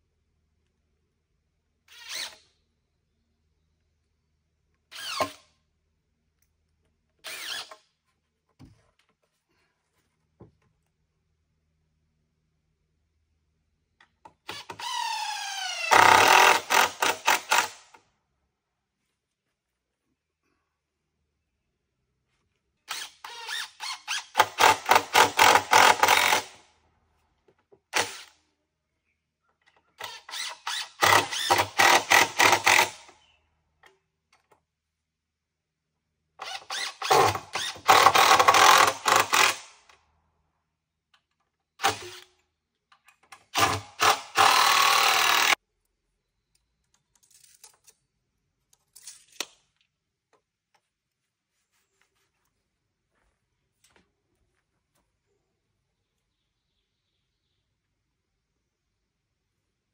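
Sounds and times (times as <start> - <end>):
cordless drill driving screws: 1.9 - 2.5, 4.9 - 5.5, 7.2 - 7.8, 14.5 - 17.9, 22.9 - 26.6, 27.9 - 28.4, 30.0 - 33.2, 36.4 - 39.9, 43.4 - 45.6.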